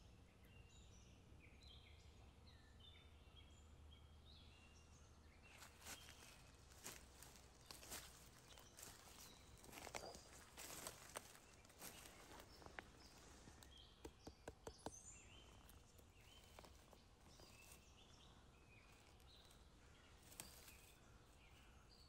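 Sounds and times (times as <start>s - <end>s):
small birds chirping: 0.0s - 22.0s
dry leaves crackling: 5.6s - 13.7s, 15.4s - 21.1s.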